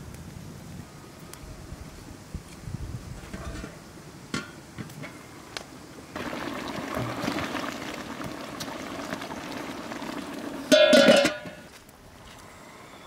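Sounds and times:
water boiling in a pot: 5.7 - 12.2
metal lid clinking: 10.7 - 11.6.

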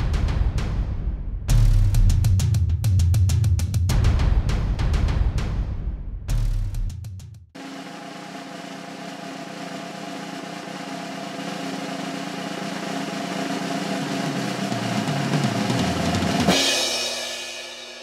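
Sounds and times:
drum roll: 0.0 - 18.0
cymbal crash: 7.6 - 18.0.

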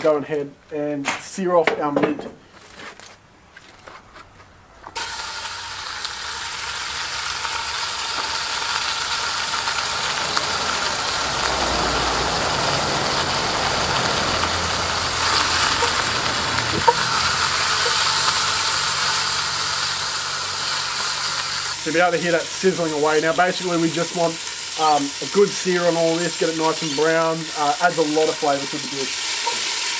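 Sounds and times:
meat sizzling in oil: 5.0 - 29.9.

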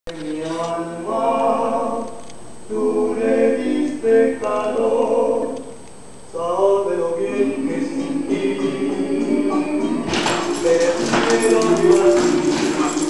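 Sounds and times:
song with sung vocals: 0.1 - 13.0.

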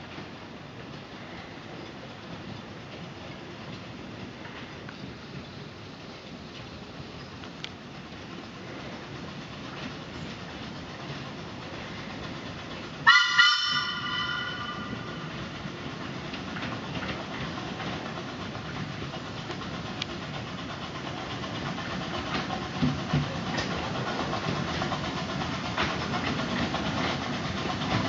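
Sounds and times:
steam train running on track: 0.0 - 28.0
wheels clicking over rail joints: 0.0 - 28.0
steam whistle blast: 13.0 - 15.1.

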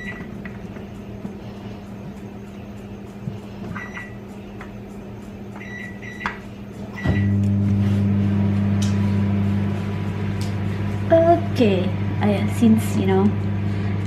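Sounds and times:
microwave keypad beeps: 0.0 - 0.4, 3.7 - 4.2, 5.6 - 6.4, 7.0 - 7.4
microwave oven humming: 0.0 - 14.0.

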